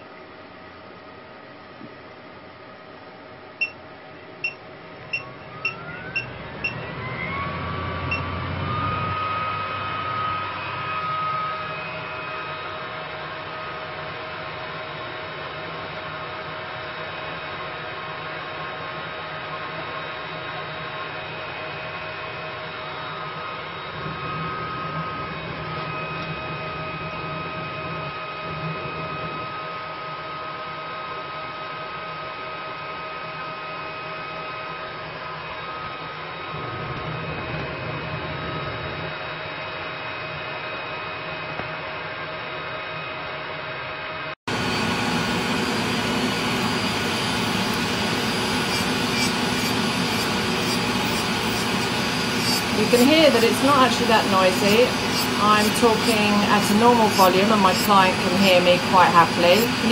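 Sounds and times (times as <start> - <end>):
high steady whine: 1.9 - 59.9
extractor fan air rush: 44.5 - 59.9.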